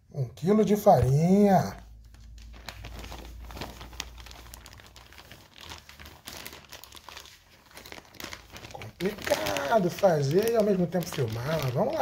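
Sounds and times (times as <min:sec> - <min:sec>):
plastic bag crinkling: 0:00.9 - 0:12.0.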